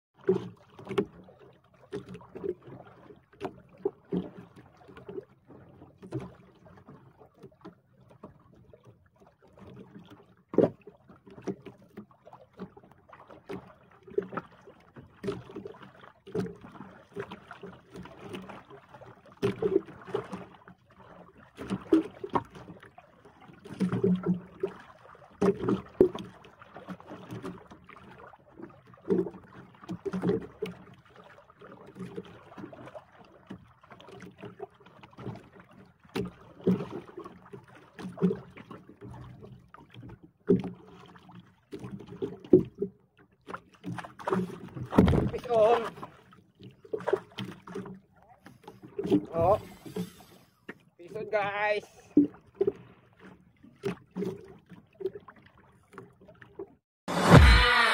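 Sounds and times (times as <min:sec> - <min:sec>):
water splashing against boat hull: 0:00.2 - 0:57.9.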